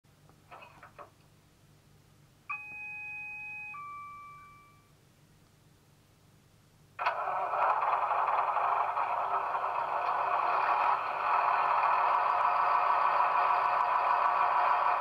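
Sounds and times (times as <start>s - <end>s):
electronic chime: 2.5s - 4.9s
diesel engine starting and running: 7.0s - 15.0s.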